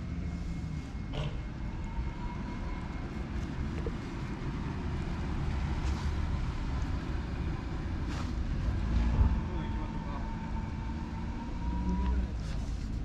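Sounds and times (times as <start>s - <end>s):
low outdoor rumble: 0.0s - 13.0s
faint rustle: 5.8s - 6.9s.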